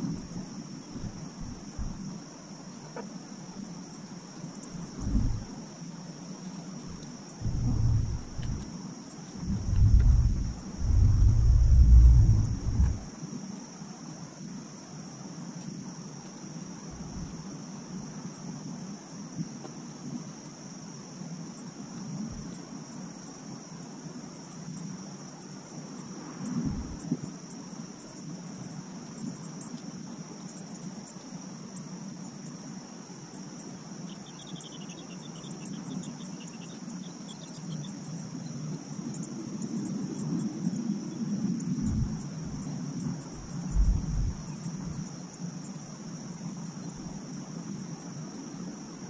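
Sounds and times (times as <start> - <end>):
insects droning: 0.0 - 49.0
distant traffic rumble: 7.4 - 8.6, 9.4 - 13.1, 43.4 - 44.4.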